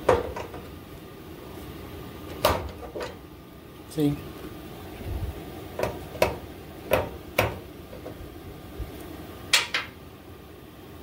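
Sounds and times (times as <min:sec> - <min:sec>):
metal-on-metal clanks: 0:09.5 - 0:10.0.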